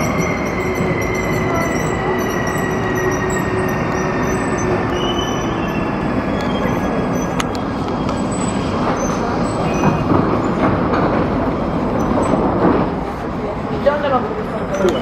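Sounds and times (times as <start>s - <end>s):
high brake squealing: 0.0s - 10.6s, 14.7s - 15.0s
metro train rumbling to a stop: 0.0s - 15.0s.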